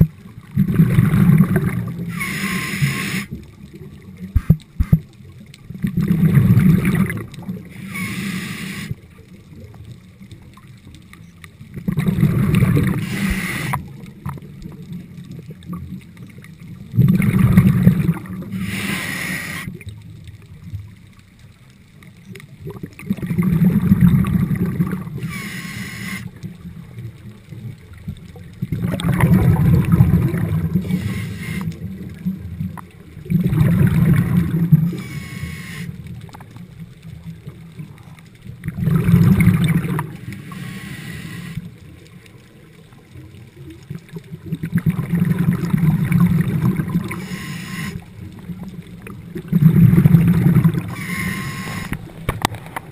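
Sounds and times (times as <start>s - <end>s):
exhaled bubbles rushing: 0.0s - 4.4s, 5.7s - 8.1s, 11.7s - 20.0s, 22.6s - 25.4s, 26.4s - 35.1s, 37.2s - 42.1s, 43.3s - 52.9s
regulator hiss: 2.1s - 3.4s, 7.8s - 9.0s, 13.0s - 13.8s, 18.5s - 19.7s, 25.2s - 26.3s, 30.8s - 31.7s, 34.9s - 35.9s, 40.2s - 41.7s.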